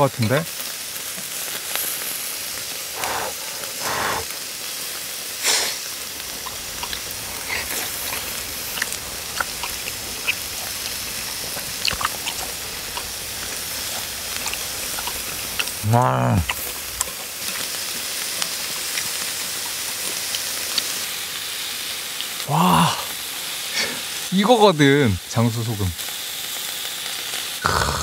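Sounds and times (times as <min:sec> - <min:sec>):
beef sizzling on grill: 0:00.0 - 0:28.0
fat spitting and popping: 0:03.0 - 0:04.3, 0:05.4 - 0:17.7, 0:27.6 - 0:28.0.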